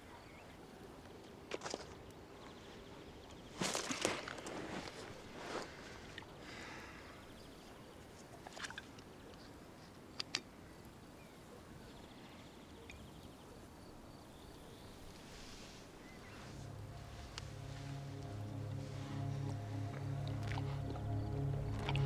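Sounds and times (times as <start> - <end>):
soft rustling: 3.5 - 6.3, 14.8 - 20.0.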